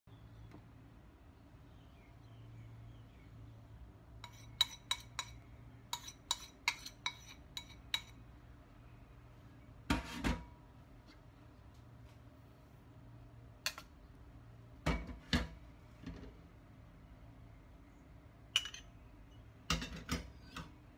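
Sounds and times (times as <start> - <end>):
metal spoon clinking against bowls: 4.2 - 8.2, 18.6 - 20.7.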